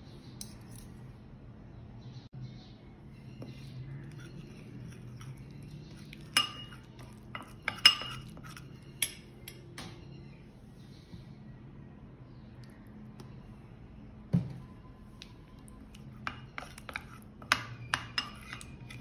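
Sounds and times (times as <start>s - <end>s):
spoon stirring paste in bowl: 3.2s - 9.7s, 15.1s - 19.0s
spoon clinking against ceramic bowl: 4.0s - 9.7s, 15.9s - 19.0s.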